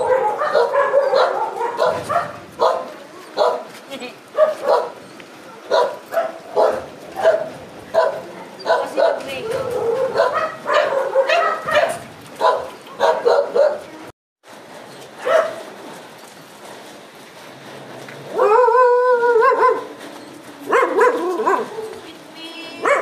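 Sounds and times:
dog drawn-out call: 0.0 - 3.7, 5.6 - 13.9, 20.6 - 22.0, 22.8 - 23.0
small dogs barking and yipping: 0.0 - 13.9, 15.2 - 15.6, 18.3 - 23.0.

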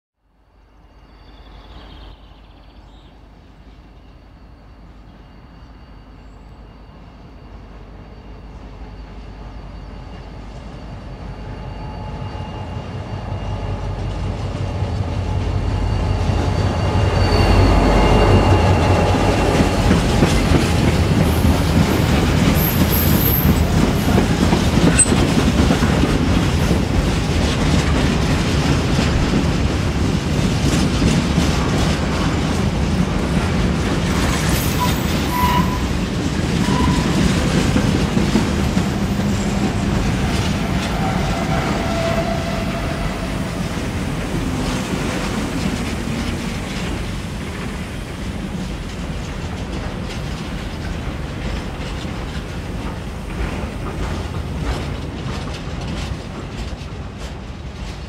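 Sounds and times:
diesel locomotive engine: 0.3 - 58.0
high wheel squeals: 4.0 - 26.8, 34.2 - 47.0
train wheels clattering over rails: 17.6 - 58.0.

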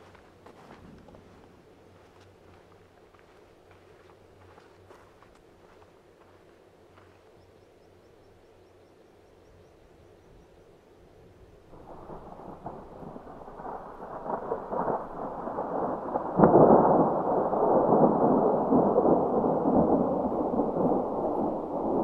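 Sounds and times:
sharp thunder crack: 11.7 - 22.0
thunder rumbling: 11.7 - 22.0.

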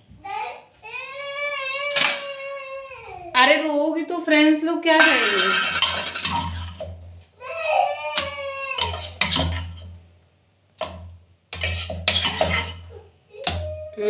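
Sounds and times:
small child whimpering: 0.3 - 3.3, 7.4 - 9.2, 12.8 - 14.0
dishes and spoon clinking: 5.0 - 7.0, 8.8 - 10.0, 10.8 - 12.9.

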